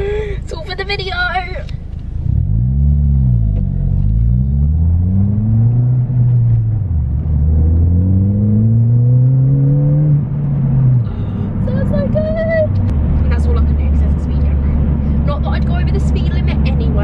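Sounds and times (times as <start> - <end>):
car engine revving and accelerating: 2.2 - 17.0.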